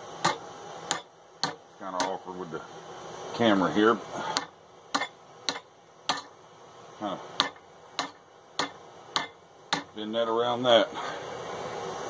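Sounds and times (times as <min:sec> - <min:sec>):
hammer striking hot steel: 0:00.1 - 0:02.3, 0:04.2 - 0:06.4, 0:07.3 - 0:10.1.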